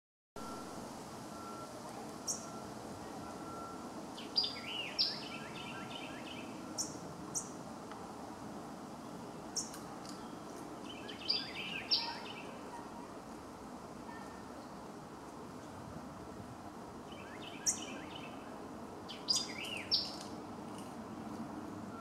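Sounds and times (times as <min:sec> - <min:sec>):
outdoor background hiss: 0:00.4 - 0:22.0
bird phrase with chirps: 0:11.2 - 0:12.9.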